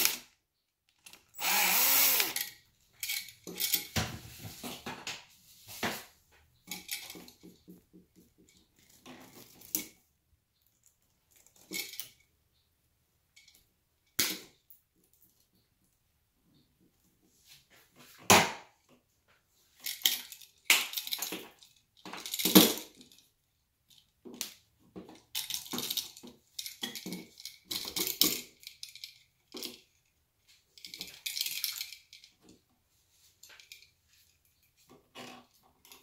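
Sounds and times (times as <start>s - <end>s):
wires clicking and scraping: 0.0s - 12.6s.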